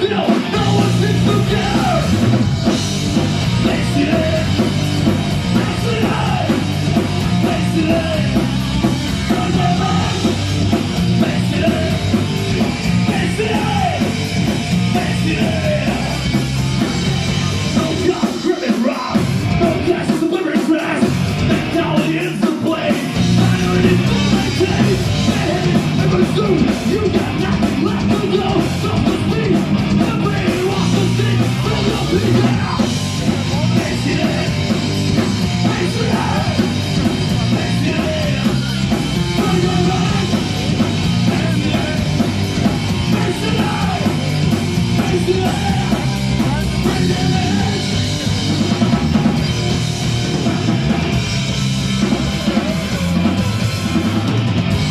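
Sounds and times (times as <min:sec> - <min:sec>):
shouted vocals: 0:00.0 - 0:02.2, 0:05.6 - 0:06.7, 0:13.1 - 0:14.1, 0:35.5 - 0:36.8, 0:43.0 - 0:44.3
distorted electric guitars: 0:00.0 - 0:54.9
drum kit: 0:00.0 - 0:54.9.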